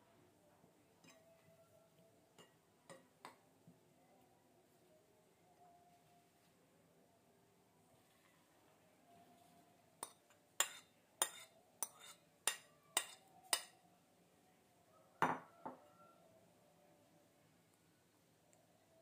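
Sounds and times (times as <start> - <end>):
ceramic bowl knocking on pan: 15.2 - 15.8.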